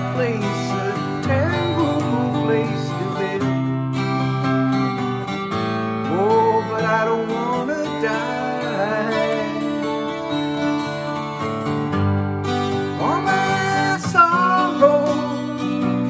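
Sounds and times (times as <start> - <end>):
man singing: 0.0 - 4.4, 6.0 - 11.1, 12.8 - 16.0
acoustic guitar strummed: 0.0 - 16.0.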